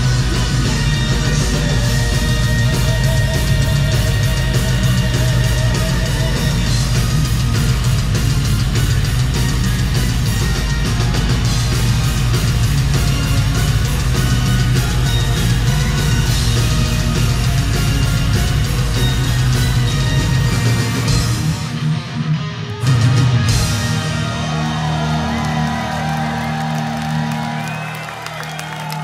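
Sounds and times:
metal band playing live: 0.0 - 29.0.

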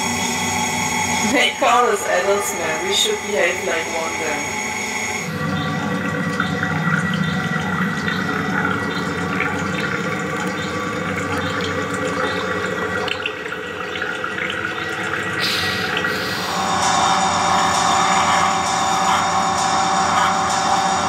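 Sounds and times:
electronic drone: 0.0 - 13.2, 14.7 - 21.0
hiss: 15.4 - 19.3.

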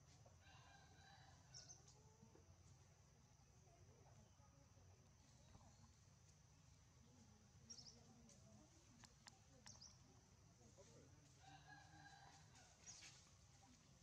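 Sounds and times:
faint background hum: 0.0 - 14.0
faint ticks: 7.7 - 10.0.

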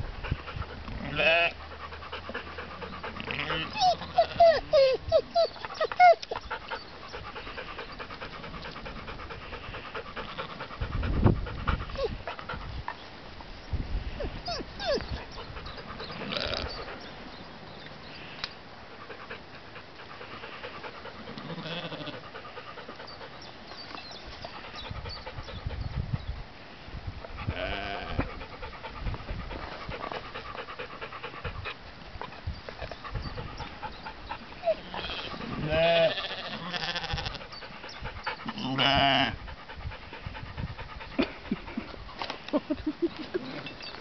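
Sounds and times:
sheep bleating: 1.1 - 1.6, 3.2 - 4.5, 21.4 - 22.2, 34.9 - 37.4, 38.6 - 39.3.

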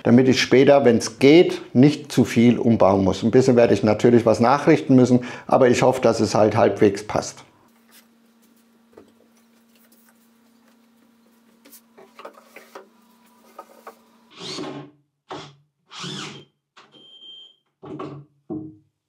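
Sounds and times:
faint steady hum: 0.0 - 14.3
handheld power tool running: 14.3 - 16.4.

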